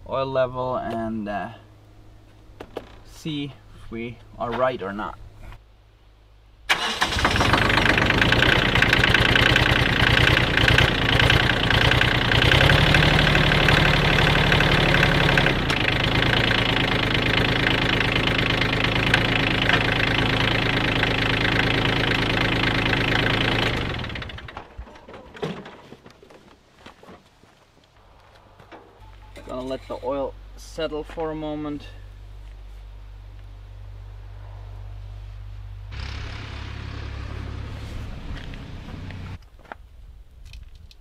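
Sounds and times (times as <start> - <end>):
tractor diesel engine idling: 6.7 - 26.3, 35.9 - 39.4.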